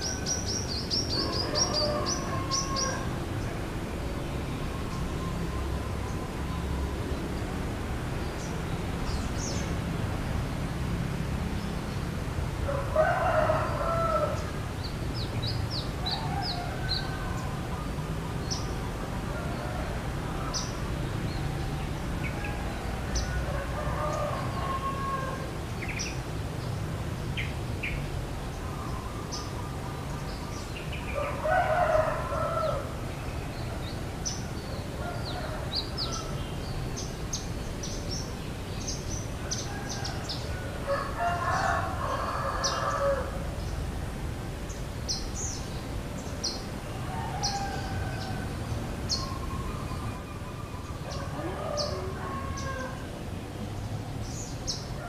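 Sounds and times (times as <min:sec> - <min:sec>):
rooster crowing: 0:00.0 - 0:03.2, 0:12.6 - 0:14.5, 0:16.0 - 0:17.8, 0:21.7 - 0:25.5, 0:30.6 - 0:33.0, 0:34.6 - 0:36.5, 0:39.4 - 0:43.4, 0:46.9 - 0:50.0, 0:50.9 - 0:53.1
small birds chirping: 0:00.0 - 0:07.6.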